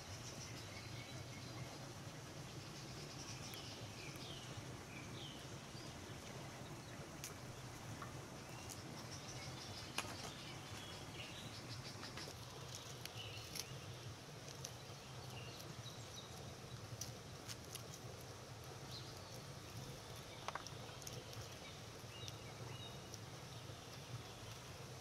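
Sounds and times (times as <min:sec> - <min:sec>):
pomegranate rind crackling: 0:09.8 - 0:25.0.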